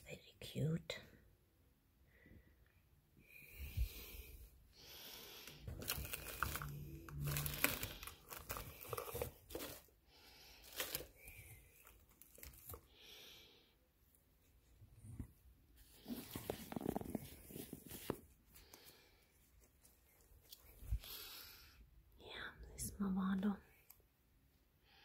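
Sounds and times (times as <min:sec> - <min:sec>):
bubble wrap and cardboard crinkling: 0:05.4 - 0:13.0, 0:15.8 - 0:21.0.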